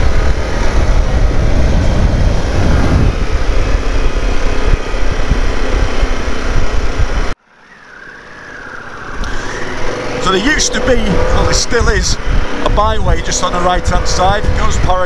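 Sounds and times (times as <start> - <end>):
motorcycle engine running: 0.0 - 7.4
wind rushing over microphone: 0.0 - 7.4, 8.8 - 15.0.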